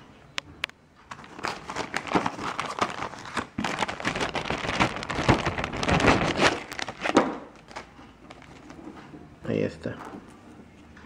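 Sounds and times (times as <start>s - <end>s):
plastic bag crinkling: 1.1s - 8.9s.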